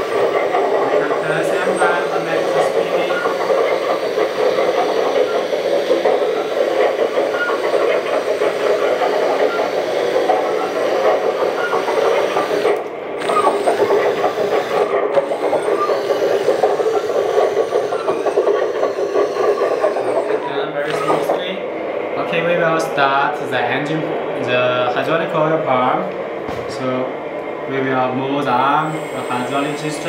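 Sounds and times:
metal tracks clattering: 0.0s - 21.7s
simulated excavator engine: 0.0s - 30.0s.

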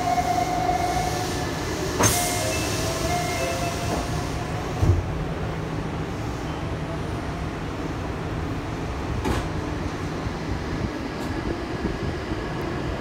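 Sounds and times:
train pulling away: 0.0s - 6.7s
electric train hum: 0.0s - 13.0s.

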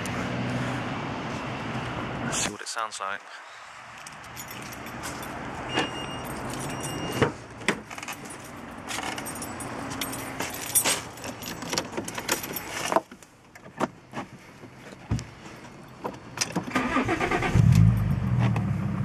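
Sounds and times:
car keys jangling: 4.0s - 7.2s, 7.8s - 13.1s.

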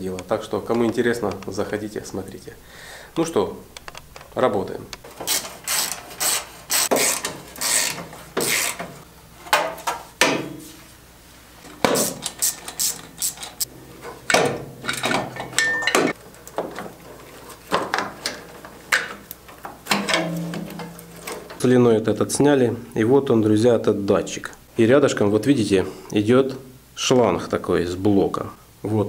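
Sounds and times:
ratchet clicking: 5.3s - 8.8s, 12.0s - 13.7s
steel tools clinking on metal: 14.8s - 16.2s.

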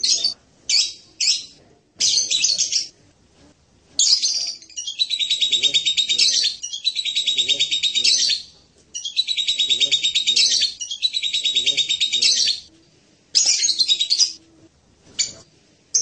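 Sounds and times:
parrot chattering calls: 4.0s - 12.7s.

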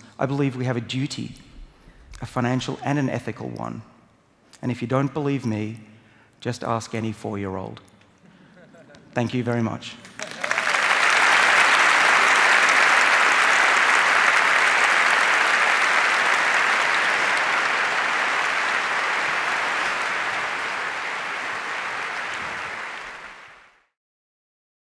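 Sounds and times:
large audience applauding: 10.0s - 23.9s.

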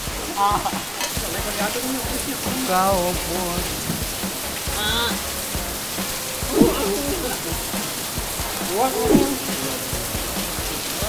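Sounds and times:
background music: 0.0s - 11.0s
rain falling: 0.0s - 11.0s
brief voices: 6.2s - 11.0s.

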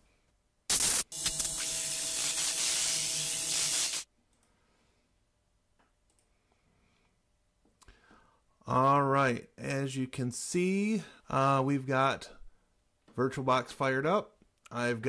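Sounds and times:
sharp burst: 0.7s - 4.1s.

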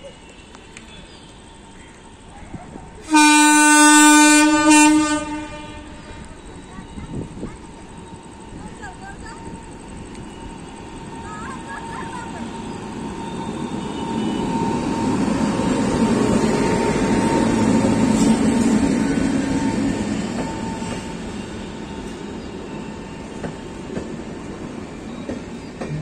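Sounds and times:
train passing with rumble and whine: 0.0s - 26.0s
wheels clacking over rail joints: 23.1s - 26.0s.

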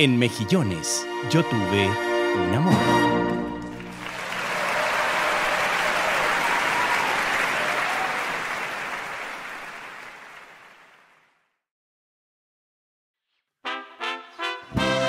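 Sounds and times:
audience applause: 3.6s - 11.4s.

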